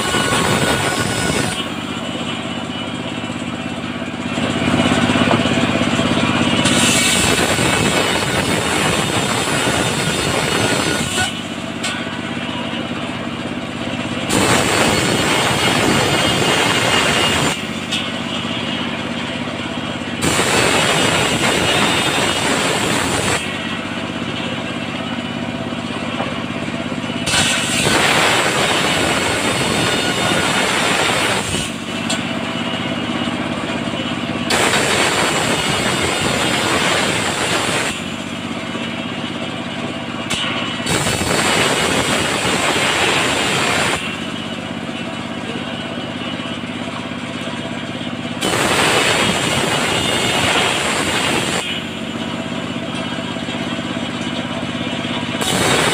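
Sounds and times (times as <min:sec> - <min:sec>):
circular saw cutting boards: 0:00.0 - 0:03.5, 0:04.1 - 0:13.1, 0:14.2 - 0:25.0, 0:27.2 - 0:32.3, 0:34.4 - 0:38.5, 0:40.3 - 0:44.6, 0:48.4 - 0:52.3, 0:55.3 - 0:55.9
sawmill engine running: 0:00.0 - 0:55.9.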